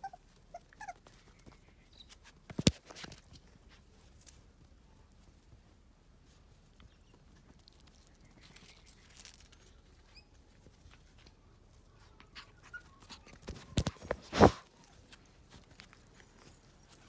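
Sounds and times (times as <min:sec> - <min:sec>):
puppy paws on concrete: 0:00.0 - 0:17.0.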